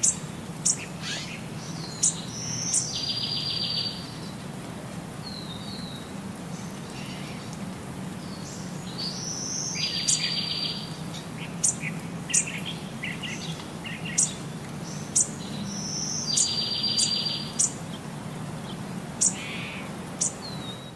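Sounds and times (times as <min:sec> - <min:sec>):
bird-like chirping calls: 0:00.0 - 0:04.0, 0:15.1 - 0:17.8.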